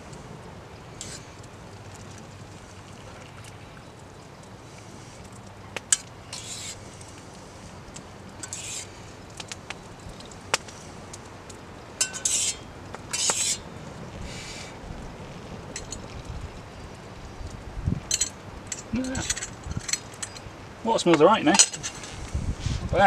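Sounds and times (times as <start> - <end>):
fork scraping metal mug: 6.3 - 6.8, 8.4 - 8.9, 12.0 - 13.6.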